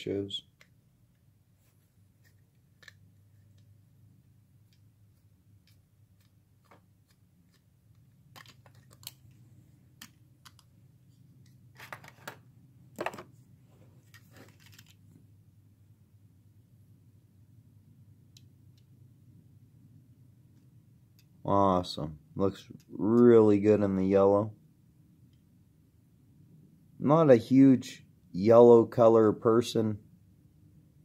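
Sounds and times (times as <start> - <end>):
clicks of handling small objects: 2.2 - 3.7, 4.6 - 9.4, 10.0 - 10.7, 14.0 - 15.1.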